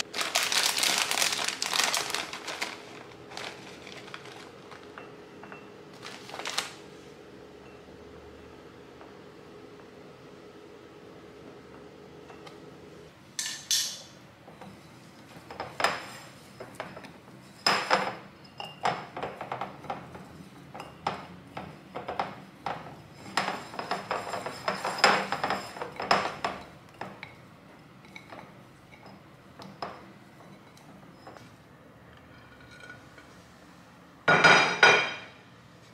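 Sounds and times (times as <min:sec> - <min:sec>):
hand mixing in glass bowl: 0:00.0 - 0:07.2.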